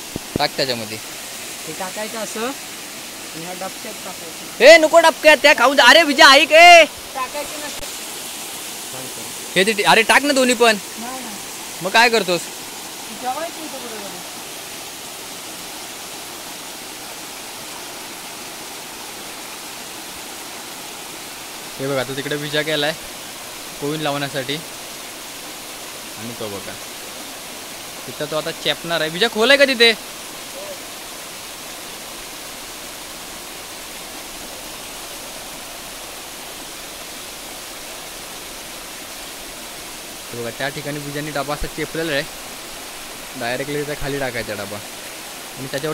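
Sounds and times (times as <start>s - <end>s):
water rushing down waterfall: 0.0s - 45.9s.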